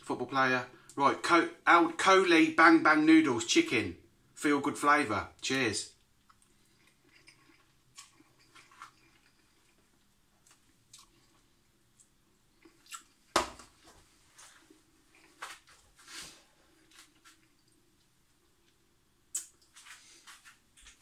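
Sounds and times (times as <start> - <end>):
faint chewing and mouth sounds: 5.9 - 21.0.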